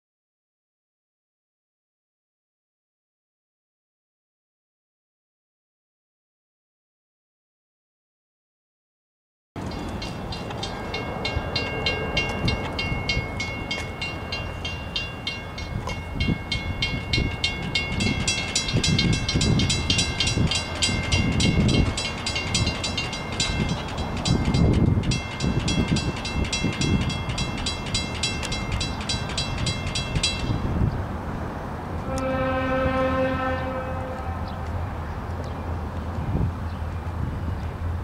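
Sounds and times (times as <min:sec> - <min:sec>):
railroad crossing bell ringing: 0:09.6 - 0:30.8.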